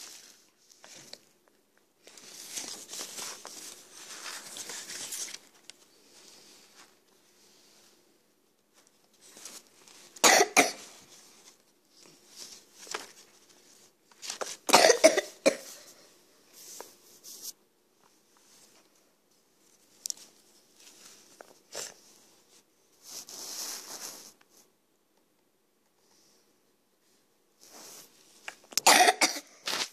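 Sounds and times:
faint rustling: 0:00.0 - 0:14.8, 0:15.4 - 0:24.7
person coughing: 0:10.2 - 0:10.9, 0:14.7 - 0:15.9, 0:28.8 - 0:29.7.

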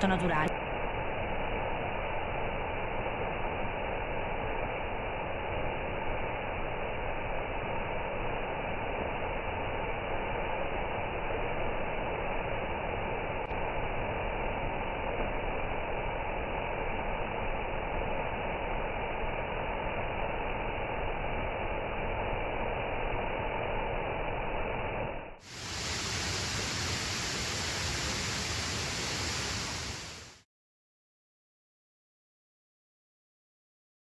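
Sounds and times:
waterfall rushing: 0:25.5 - 0:30.4.

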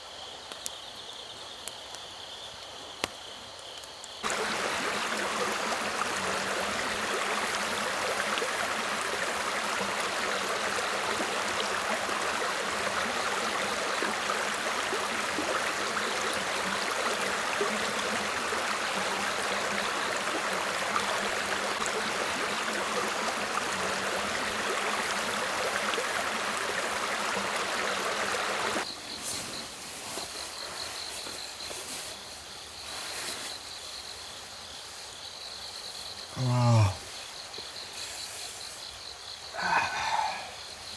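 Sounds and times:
insects chirping trill: 0:00.0 - 0:40.9
river water rushing: 0:04.2 - 0:28.8.

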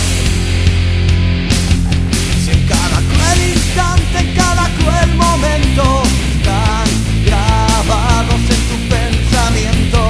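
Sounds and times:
loud rock music: 0:00.0 - 0:10.0.

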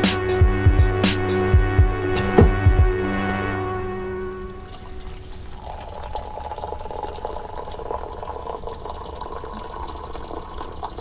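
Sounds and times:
coffee pouring into a mug: 0:05.5 - 0:11.0.

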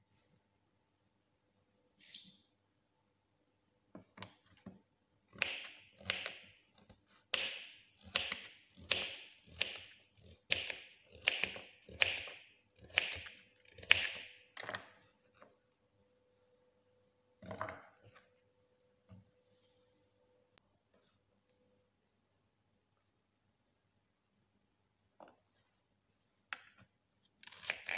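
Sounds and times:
knife cutting carrot: 0:05.3 - 0:14.4, 0:27.4 - 0:27.9.

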